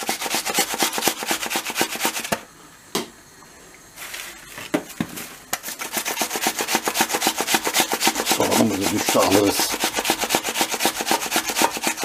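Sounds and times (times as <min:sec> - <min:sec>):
onion grated on metal grater: 0:00.0 - 0:02.4, 0:05.6 - 0:12.0.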